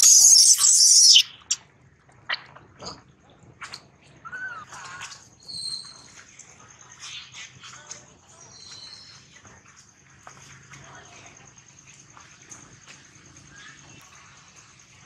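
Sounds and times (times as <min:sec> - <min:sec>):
baby monkey screaming: 0:00.0 - 0:01.6
faint squeaks and chirps: 0:00.0 - 0:01.6, 0:03.7 - 0:09.5.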